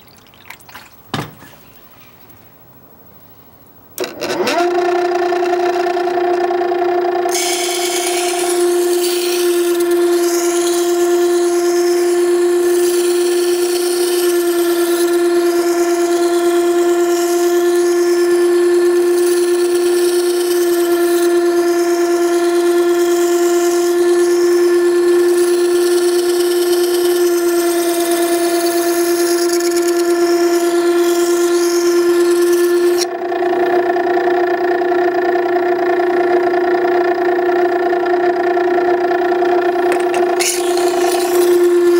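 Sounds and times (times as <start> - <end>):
sharpening machine motor whine: 4.0 - 41.9
steel blade grinding with hiss: 7.3 - 33.1, 39.9 - 41.9.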